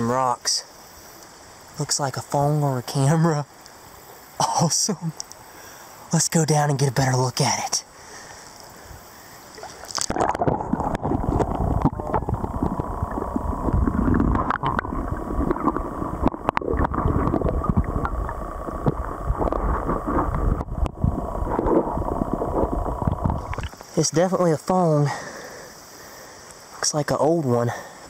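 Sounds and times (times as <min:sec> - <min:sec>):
underwater river rumbling and gurgling: 0:08.8 - 0:23.9.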